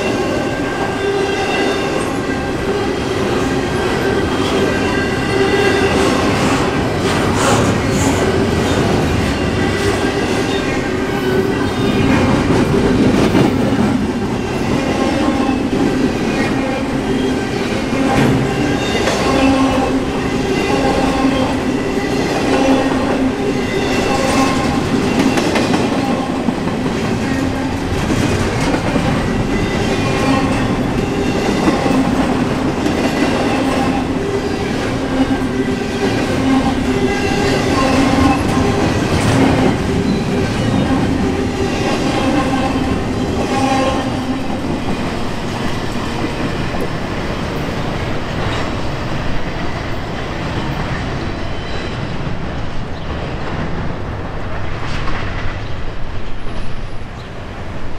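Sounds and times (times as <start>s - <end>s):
train wheels clattering on rails: 0.0s - 57.4s.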